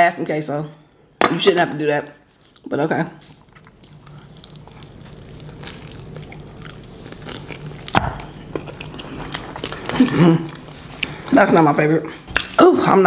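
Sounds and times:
person chewing food: 2.3 - 11.4.

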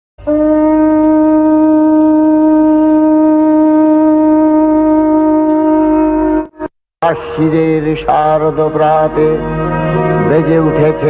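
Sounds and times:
conch shell blown: 0.2 - 6.7.

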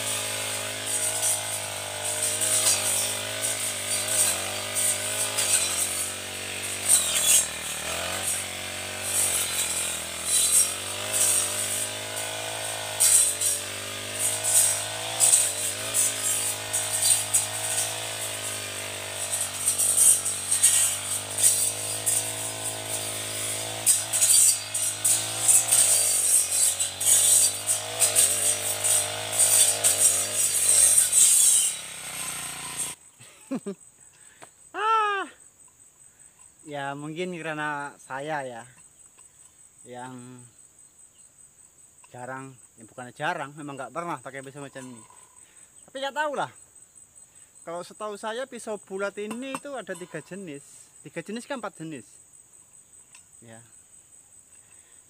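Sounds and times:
brush cutter engine running: 0.0 - 33.4, 44.4 - 46.2.

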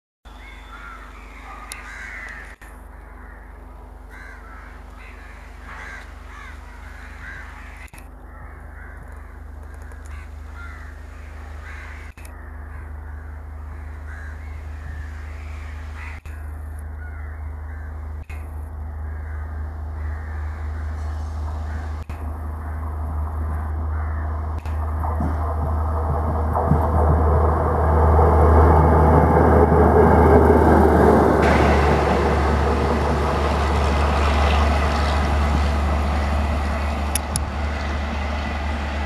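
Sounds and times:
crows cawing: 0.4 - 25.6
steady low rumble: 0.8 - 39.0.

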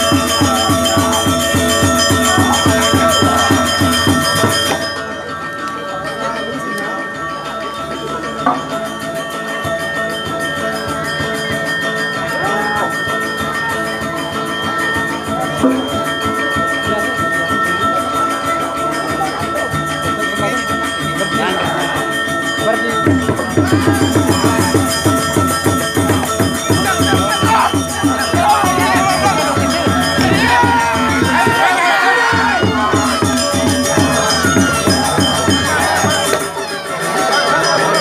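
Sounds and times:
gamelan playing: 0.0 - 38.0
fast even drum beat: 23.1 - 36.5.

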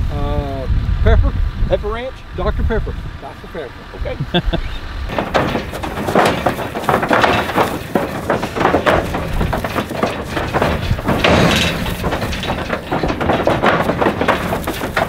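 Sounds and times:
hooves clattering on wooden floor: 5.1 - 15.0
metal gate rattling: 5.1 - 15.0.

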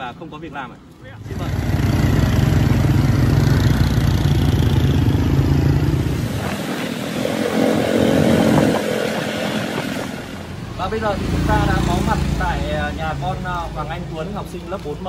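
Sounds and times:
motorbike engine running: 1.3 - 10.2.

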